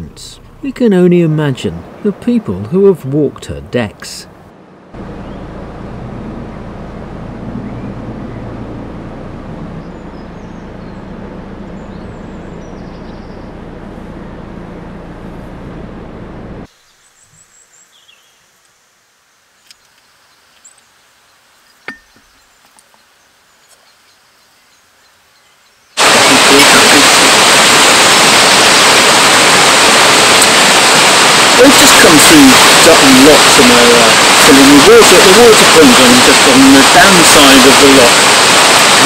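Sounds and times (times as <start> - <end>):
boat diesel engine running: 0.0 - 0.9, 5.0 - 16.7, 26.0 - 39.0
birds chirping: 0.0 - 39.0.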